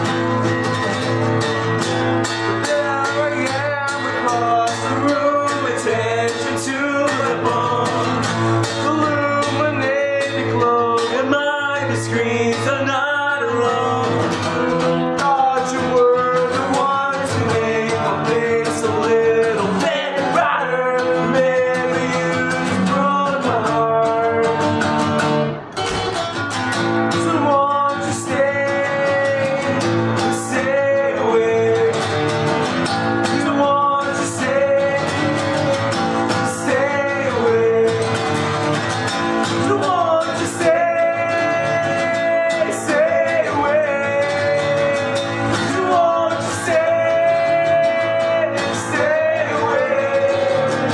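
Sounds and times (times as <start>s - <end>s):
acoustic guitars playing: 0.0s - 50.9s
person singing long notes: 33.3s - 38.1s.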